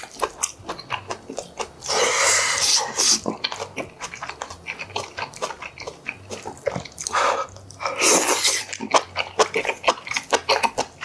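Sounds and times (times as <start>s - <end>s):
wet chewing and mouth clicks: 0.0s - 11.0s
loud slurps: 1.8s - 3.4s, 7.0s - 10.8s.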